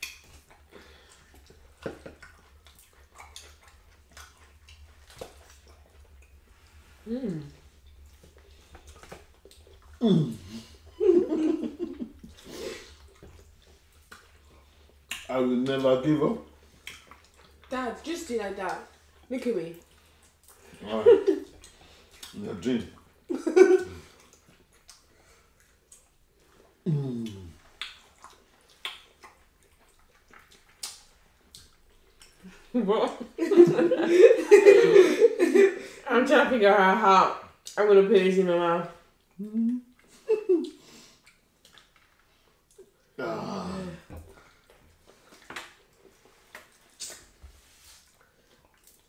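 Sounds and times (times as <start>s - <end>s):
mouth smacks and clicks: 0.0s - 6.4s, 7.8s - 10.0s, 12.2s - 15.8s, 16.8s - 17.7s, 21.5s - 22.4s, 24.2s - 32.5s, 39.2s - 43.0s, 44.6s - 49.0s
person laughing: 11.0s - 12.2s, 23.3s - 24.0s, 33.4s - 35.8s, 40.3s - 40.8s
falling vocal sound: 43.2s - 44.1s.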